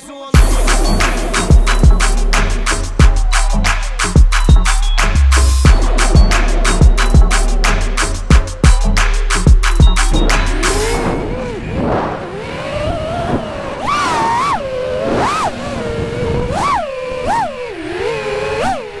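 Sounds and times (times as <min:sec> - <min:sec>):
quadcopter motors whining: 0:10.3 - 0:19.0.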